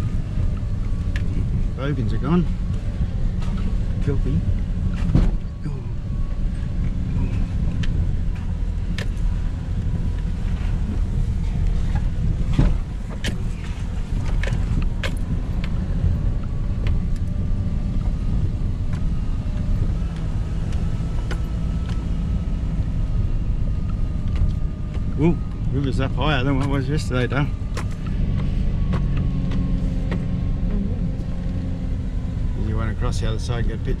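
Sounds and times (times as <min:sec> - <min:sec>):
car engine and tyres rumbling: 0:00.0 - 0:34.0
knocks and rattles over bumps: 0:06.8 - 0:22.2.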